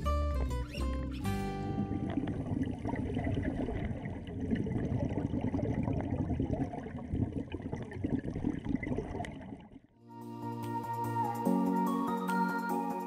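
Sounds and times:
underwater bubbles rushing: 1.2s - 9.9s.

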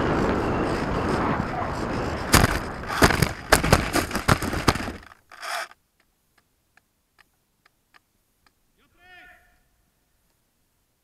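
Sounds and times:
model plane knocking and scraping on snow: 1.8s - 5.7s
faint ticks: 5.3s - 8.6s.

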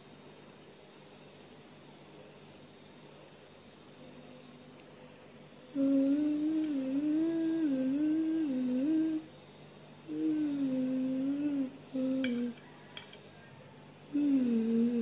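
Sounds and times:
woman humming a slow tune: 5.7s - 9.4s, 10.0s - 12.7s, 14.1s - 15.0s.

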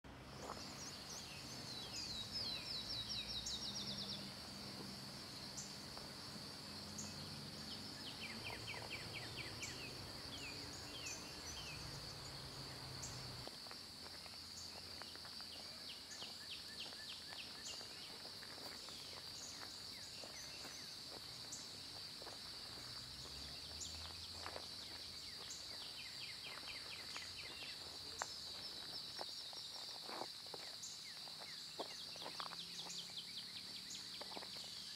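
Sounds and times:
crickets trilling: 0.3s - 34.9s
bird chirps: 0.4s - 6.0s, 6.7s - 13.4s, 23.3s - 29.7s, 30.7s - 34.9s.

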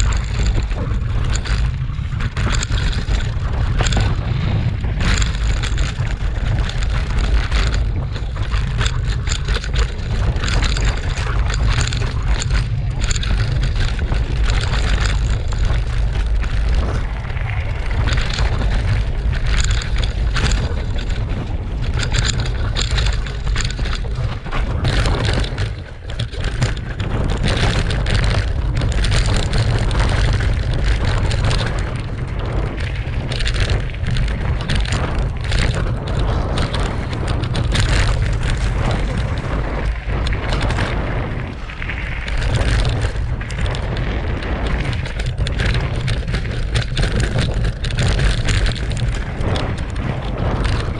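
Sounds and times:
bike rattling and knocking: 0.0s - 50.9s
bike tyre noise: 0.0s - 50.9s
wind rumble on microphone: 0.0s - 50.9s.

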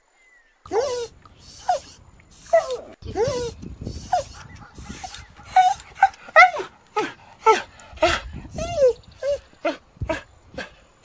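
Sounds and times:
puppy yipping and whimpering: 0.7s - 7.6s, 8.6s - 9.4s.

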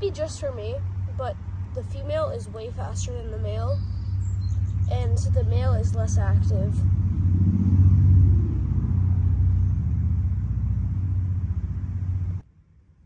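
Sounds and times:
low motor rumble: 0.0s - 13.0s.

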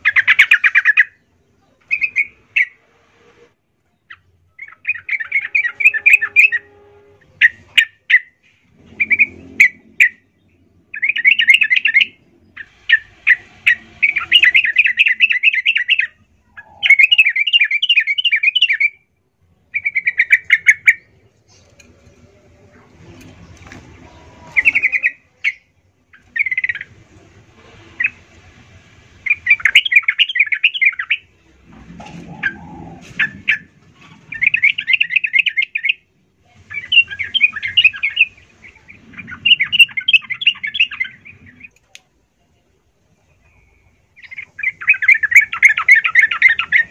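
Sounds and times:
bird singing bubbling chirps: 8.9s - 19.0s, 29.2s - 31.3s, 34.3s - 36.1s, 36.7s - 41.8s, 43.3s - 46.9s.

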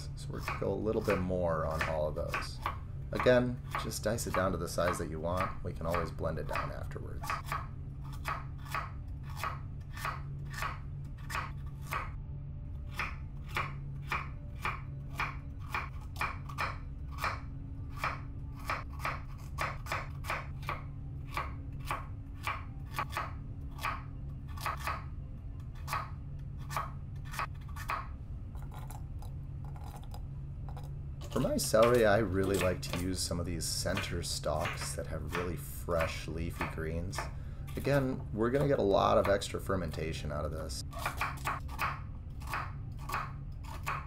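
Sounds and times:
low steady hum: 0.0s - 44.0s
knife chopping on wooden board: 31.8s - 33.1s, 33.9s - 37.3s, 40.9s - 44.0s.

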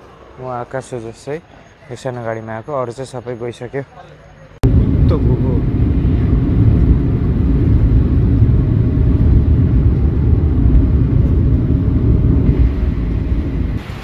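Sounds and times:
car engine rumble: 4.1s - 14.0s
tyre noise on road: 4.6s - 14.0s.

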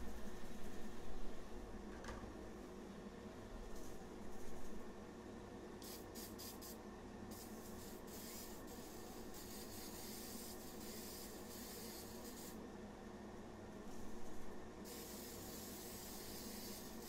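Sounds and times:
aerosol spray hissing: 5.8s - 12.6s, 14.9s - 17.0s.

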